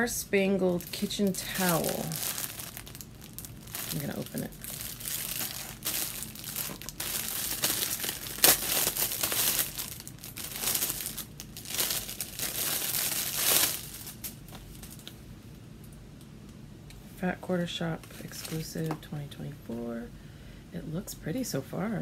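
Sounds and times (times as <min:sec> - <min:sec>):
plastic packaging crinkling: 0:00.5 - 0:15.2, 0:18.0 - 0:19.0.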